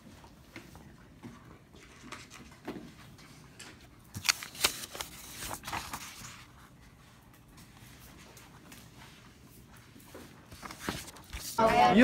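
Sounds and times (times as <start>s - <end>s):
paper rustling: 4.1s - 7.0s, 9.6s - 11.6s.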